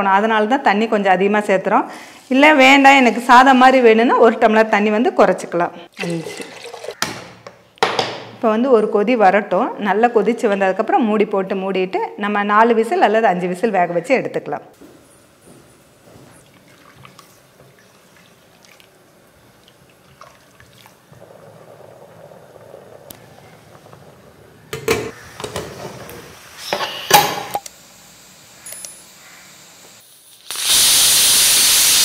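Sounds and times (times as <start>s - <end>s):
pressure cooker steam hissing: 26.1s - 32.0s.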